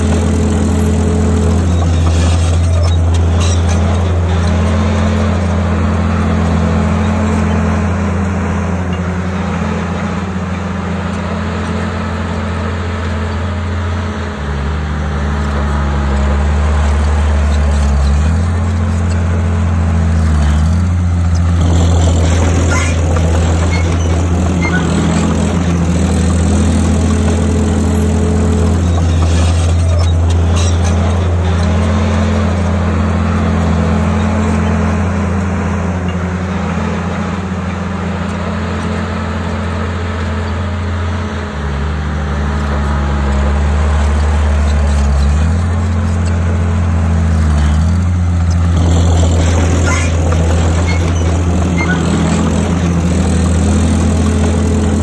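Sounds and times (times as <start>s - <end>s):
bulldozer diesel engine under load: 0.0s - 55.0s.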